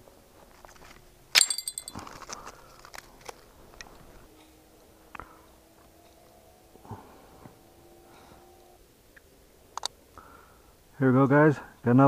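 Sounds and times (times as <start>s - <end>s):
sharp ringing clink: 1.4s - 2.1s
light clicks and crunches: 1.9s - 4.2s.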